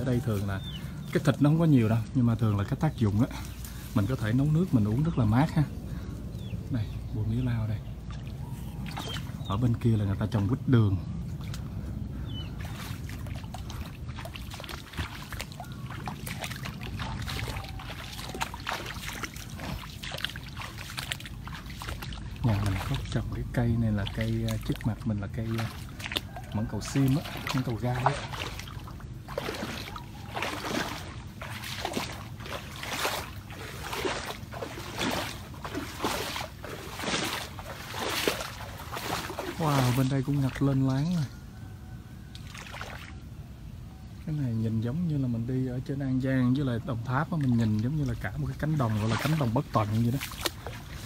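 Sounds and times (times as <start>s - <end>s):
water splashing: 0.0s - 43.5s, 44.6s - 51.0s.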